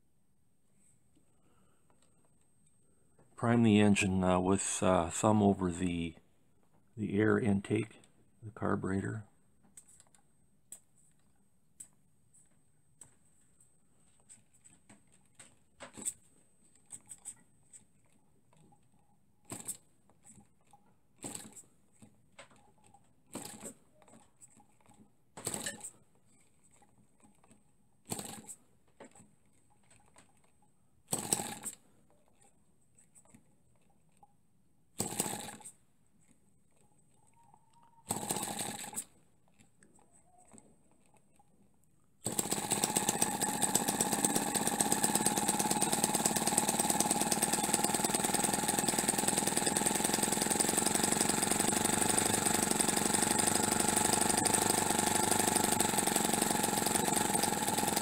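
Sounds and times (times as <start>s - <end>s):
small engine firing and running: 28.1s - 28.6s, 31.1s - 31.8s, 35.0s - 35.8s, 38.0s - 39.1s, 42.2s - 58.0s.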